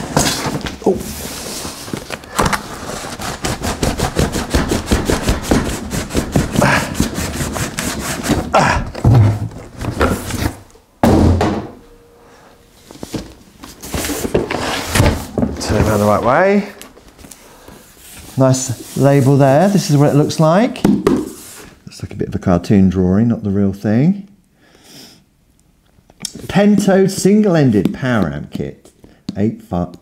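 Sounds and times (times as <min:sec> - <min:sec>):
cardboard boxes scraping: 0:00.0 - 0:10.7, 0:12.9 - 0:16.7, 0:17.8 - 0:20.6
heavy thud: 0:08.6 - 0:10.3, 0:11.0 - 0:11.9.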